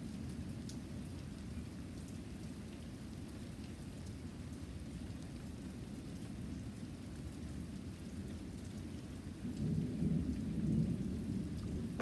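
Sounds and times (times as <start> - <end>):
heavy rain pouring: 8.8 - 12.0.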